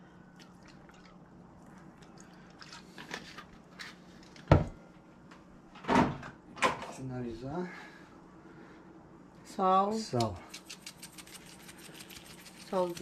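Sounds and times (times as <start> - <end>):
liquid trickling from bottle: 10.5 - 13.0.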